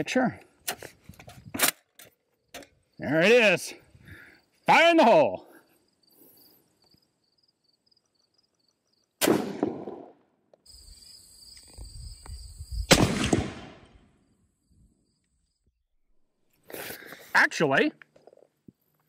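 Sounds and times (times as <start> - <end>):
rifle shot blast: 9.2 - 10.2, 12.9 - 14.0.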